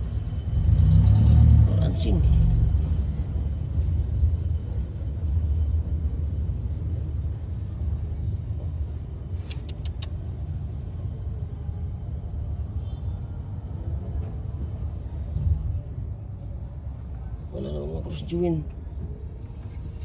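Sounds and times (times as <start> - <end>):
vehicle engine rumbling: 0.0 - 11.4
quick high clicks: 9.4 - 10.2.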